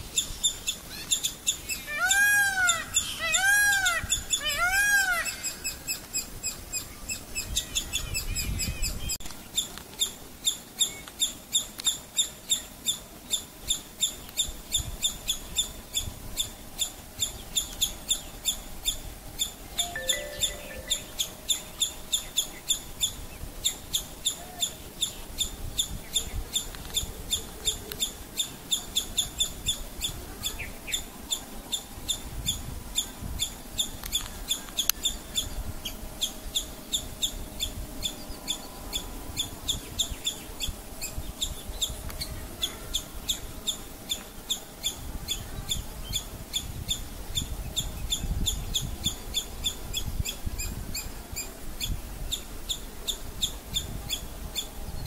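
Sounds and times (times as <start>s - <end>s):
squirrel alarm call: 10.4s - 26.7s.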